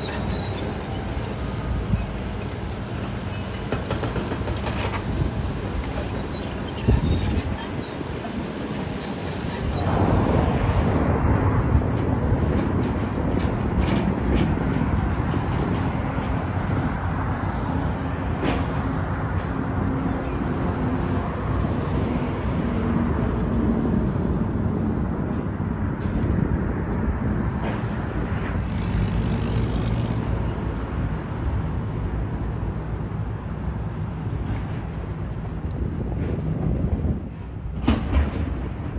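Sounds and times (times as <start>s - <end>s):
cars passing: 7.7s - 36.9s.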